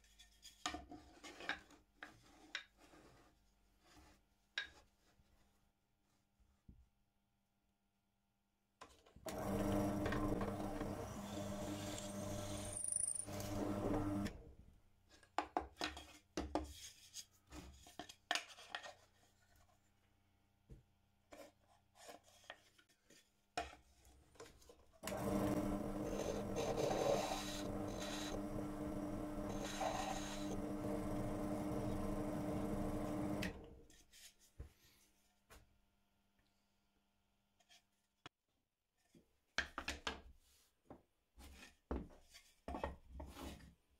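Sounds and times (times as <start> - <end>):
wood rasping: 9.6 - 14.2, 25.1 - 32.2.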